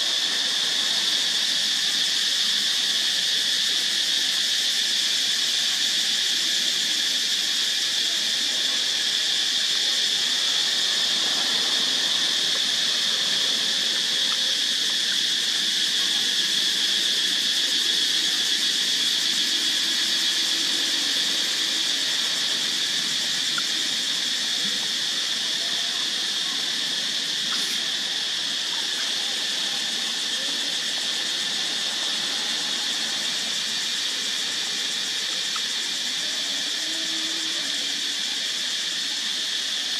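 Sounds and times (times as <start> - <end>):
insect chorus drone: 0.0 - 39.9.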